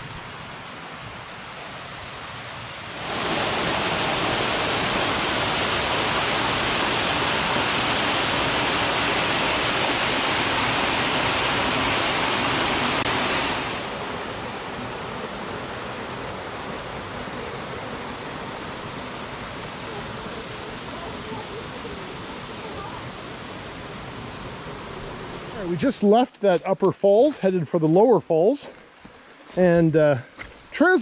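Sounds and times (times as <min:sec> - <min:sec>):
waterfall rushing: 0:02.7 - 0:26.1.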